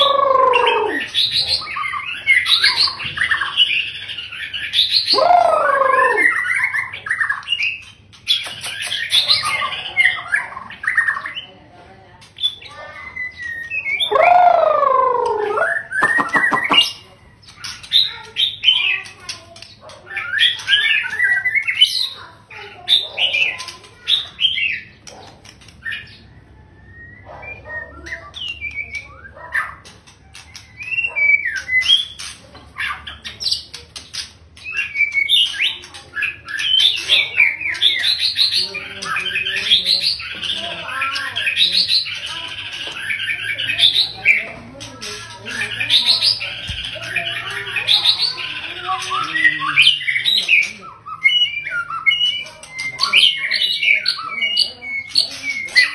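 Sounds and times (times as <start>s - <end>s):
bird singing whistled phrases: 13.2s - 16.9s.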